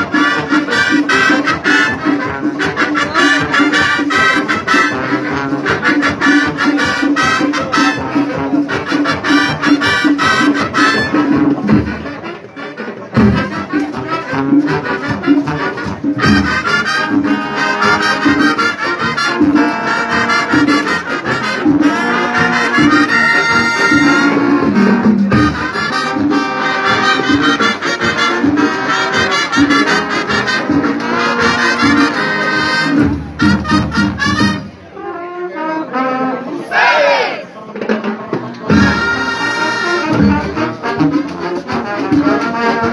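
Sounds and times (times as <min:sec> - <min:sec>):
marching band playing: 0:00.0 - 0:42.9.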